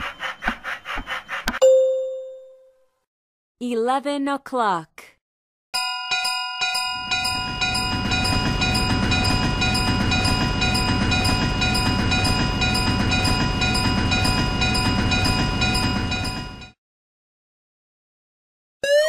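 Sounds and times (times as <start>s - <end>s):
crossing warning bell ringing: 5.8s - 16.8s
train rumbling past: 7.0s - 16.7s.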